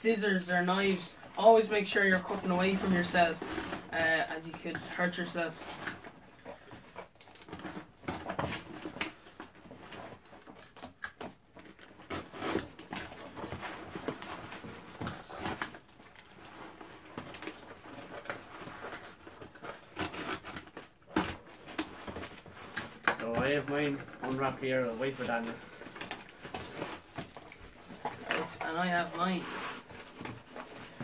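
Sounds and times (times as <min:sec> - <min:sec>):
cardboard rustling and flapping: 0:00.3 - 0:31.0
knife cutting packing tape: 0:10.6 - 0:23.1.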